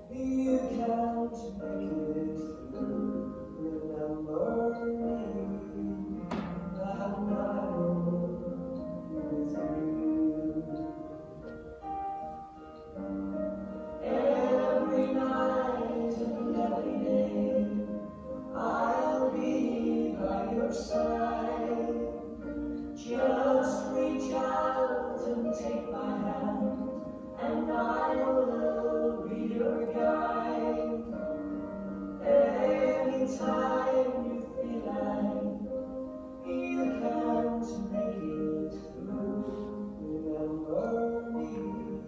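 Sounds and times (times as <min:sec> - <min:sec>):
choir singing sacred music: 0:12.8 - 0:42.0.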